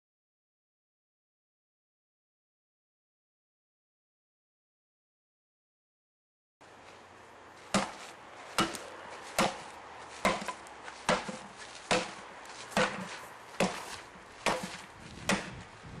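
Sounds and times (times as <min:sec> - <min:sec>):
axe chopping wood: 0:07.7 - 0:15.7.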